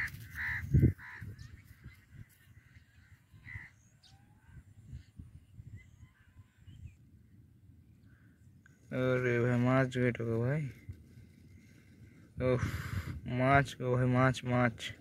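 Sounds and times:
bird calls: 0.0s - 8.9s
low rumbling microphone noise: 9.8s - 13.8s.

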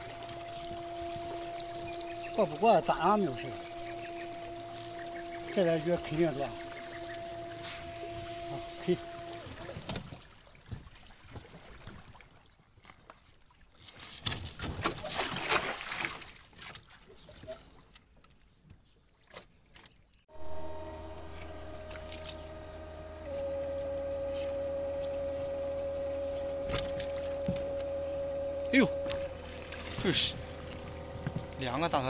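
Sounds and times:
steady hum with held tone: 0.0s - 9.8s, 20.3s - 32.0s
water splashing and sloshing: 0.0s - 20.2s.

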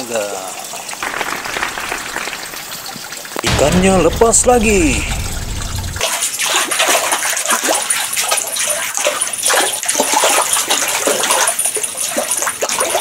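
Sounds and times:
stream water running and splashing: 0.0s - 3.5s, 6.1s - 13.0s.

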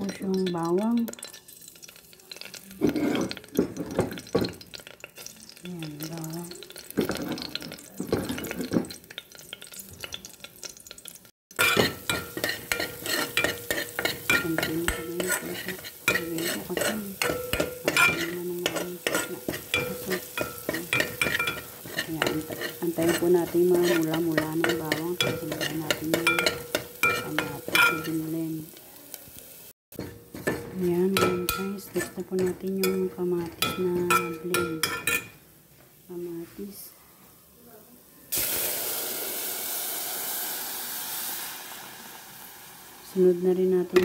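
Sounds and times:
spatula scraping metal pot: 0.0s - 5.6s, 11.6s - 28.3s, 30.0s - 35.3s
garlic sizzling in oil: 0.0s - 36.8s, 37.9s - 44.0s.

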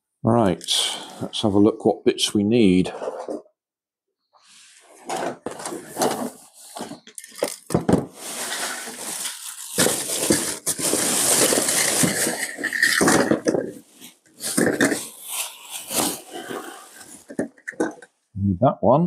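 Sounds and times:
plastic parts clicking and clattering: 5.1s - 18.1s
plastic bag crinkling: 5.5s - 18.0s.

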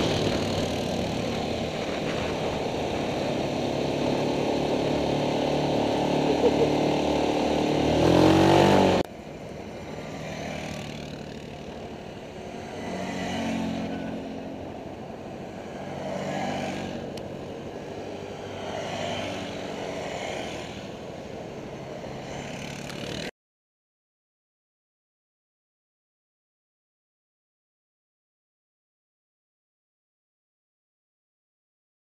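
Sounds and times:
faint quad engines riding by: 0.0s - 23.3s
quad bike engine passing: 0.0s - 23.3s.

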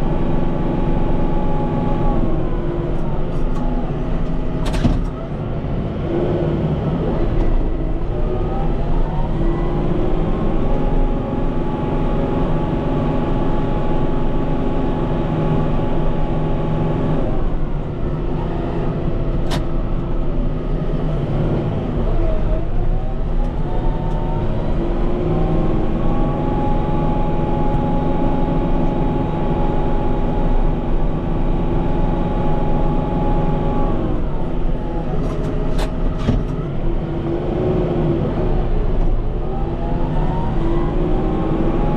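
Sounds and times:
tractor diesel engine revving: 0.0s - 41.9s.

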